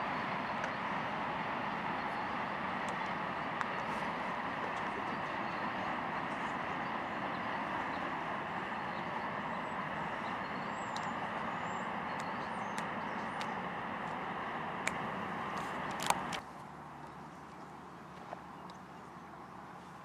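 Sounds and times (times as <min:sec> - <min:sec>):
freight train rolling on rails: 0:00.0 - 0:16.4
sharp clicks: 0:14.8 - 0:16.4.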